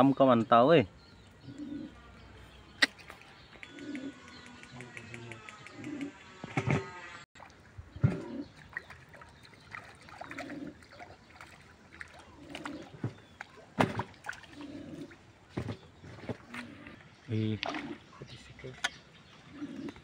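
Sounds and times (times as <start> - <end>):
dove cooing: 1.4 - 2.2, 2.8 - 6.6, 7.9 - 8.6, 10.1 - 11.2, 12.1 - 13.3, 14.4 - 17.1, 19.5 - 20.0
fish splashing water: 7.4 - 15.6, 17.6 - 18.1.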